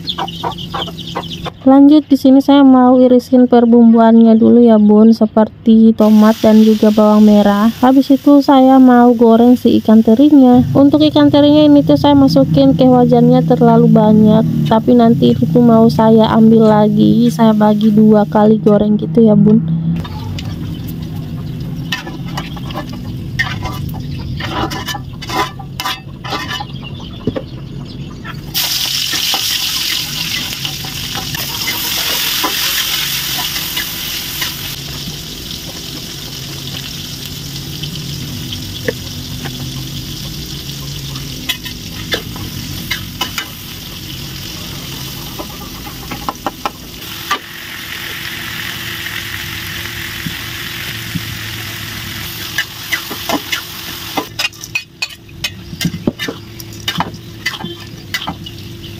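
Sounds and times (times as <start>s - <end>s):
food sizzling in hot oil: 6.0s - 10.9s, 28.5s - 54.8s
metal spatula scraping in a wok: 21.9s - 26.8s.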